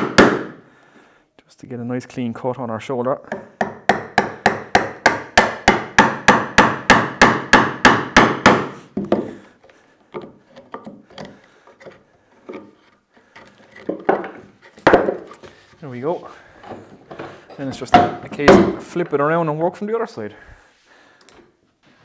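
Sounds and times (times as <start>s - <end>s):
mallet striking a chisel: 3.3s - 8.7s.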